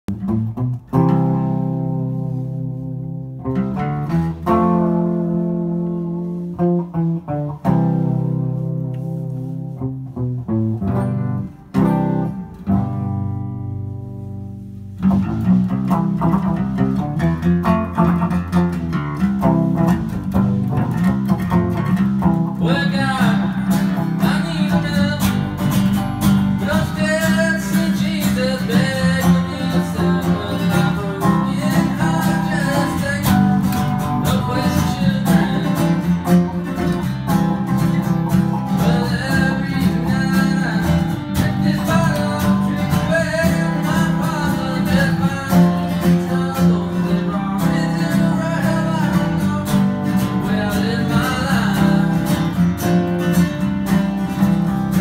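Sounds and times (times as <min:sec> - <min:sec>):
acoustic bass guitar: 0:00.0 - 0:55.0
acoustic guitar: 0:00.0 - 0:55.0
electric guitar: 0:00.0 - 0:55.0
man singing: 0:22.4 - 0:25.9, 0:26.5 - 0:37.0, 0:37.7 - 0:52.7.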